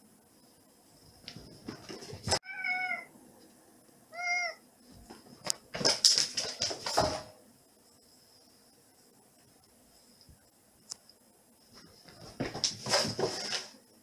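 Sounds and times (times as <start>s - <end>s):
cat running on wooden floor: 1.2s - 2.4s, 5.1s - 7.3s, 11.8s - 13.8s
cat meowing: 2.4s - 3.1s, 4.1s - 4.6s.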